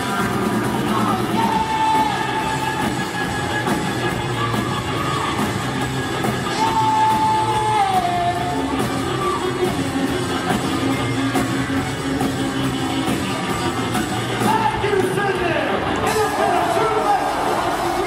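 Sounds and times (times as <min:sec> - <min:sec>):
person singing: 0:00.0 - 0:05.5, 0:06.4 - 0:11.2
live rock band playing: 0:00.0 - 0:18.0.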